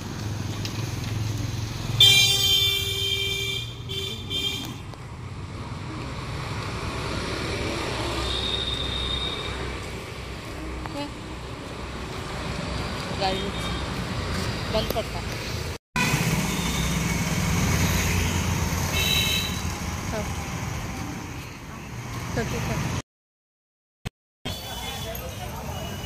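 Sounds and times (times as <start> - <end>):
passing traffic hum: 0.0 - 23.0
vehicle horn honking: 2.0 - 4.8, 18.1 - 19.7.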